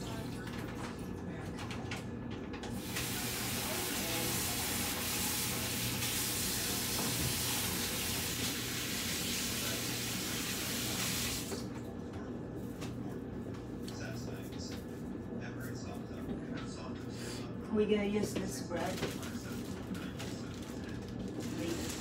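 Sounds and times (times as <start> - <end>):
faucet water running into sink: 2.8 - 11.7.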